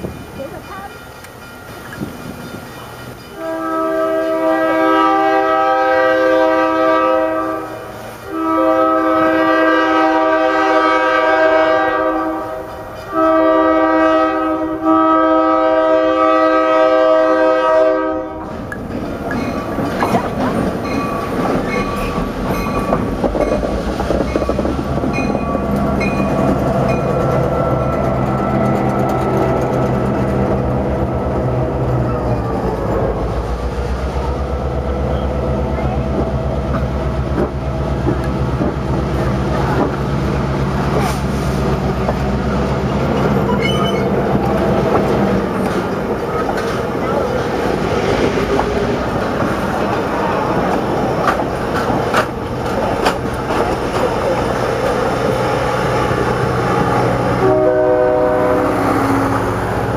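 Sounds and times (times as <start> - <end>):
train wheels clicking on rail joints: 0.0 - 3.4, 12.2 - 13.2, 18.4 - 34.3, 35.1 - 57.5
locomotive air horn blasts: 3.3 - 18.5, 56.7 - 59.8.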